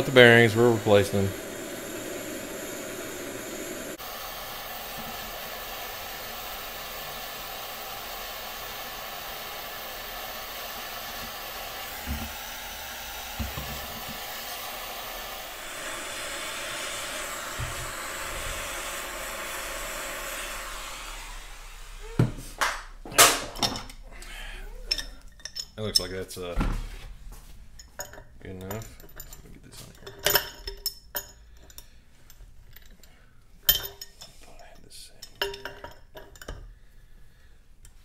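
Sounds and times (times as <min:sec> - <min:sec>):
gas torch hissing: 0:00.0 - 0:23.5.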